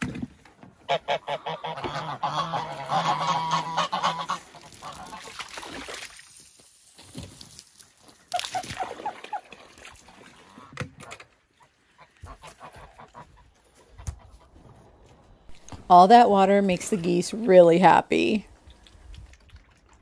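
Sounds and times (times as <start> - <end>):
geese honking: 0.8 - 5.3, 11.9 - 14.6.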